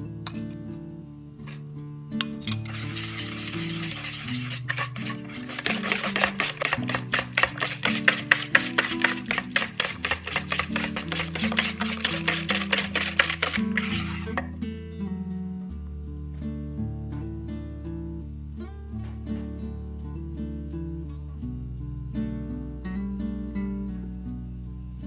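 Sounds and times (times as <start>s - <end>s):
background music: 0.0s - 19.0s
wire whisk beating batter in bowl: 2.5s - 14.5s.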